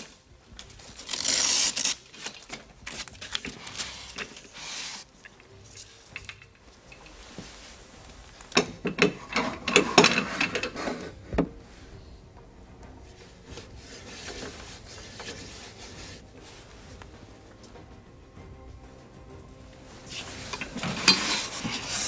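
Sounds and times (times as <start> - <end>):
metal arms rubbing and knocking: 3.4 - 11.6, 13.5 - 17.1, 20.1 - 22.0.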